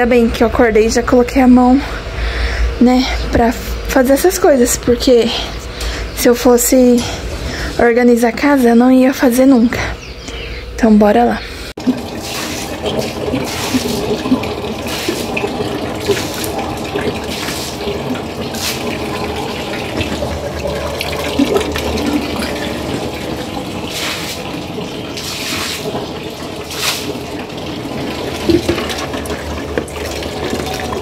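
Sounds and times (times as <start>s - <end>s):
water running and splashing: 11.7s - 31.0s.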